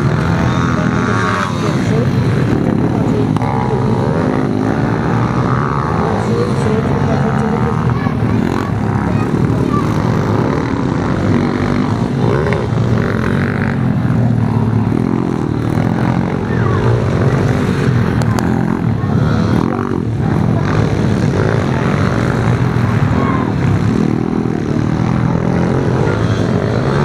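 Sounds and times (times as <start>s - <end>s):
small motorbike engines revving: 0.0s - 27.0s.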